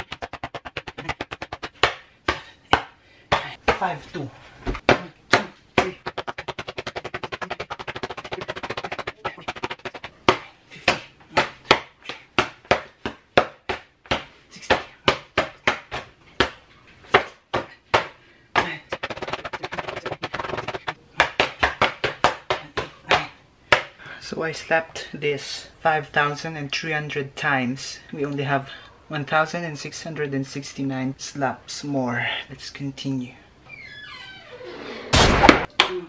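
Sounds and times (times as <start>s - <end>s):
hand slapping paper: 0.0s - 3.8s, 4.8s - 23.9s.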